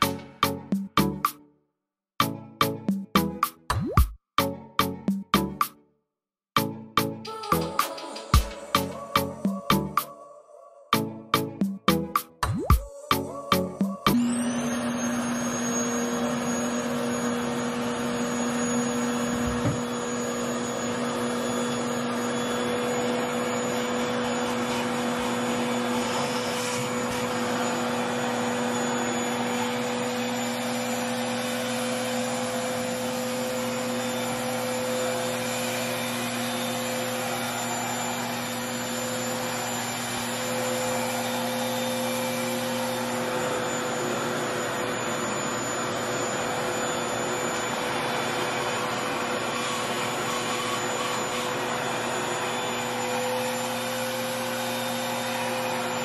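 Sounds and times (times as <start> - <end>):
hair dryer suction rushing: 13.0 - 56.0.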